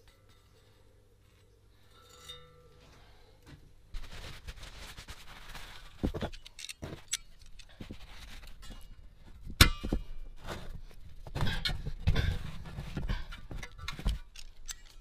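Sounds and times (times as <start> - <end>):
sharp ringing metal clank: 1.9 - 2.9
metallic clicks and knocks: 6.0 - 10.4, 11.2 - 15.0.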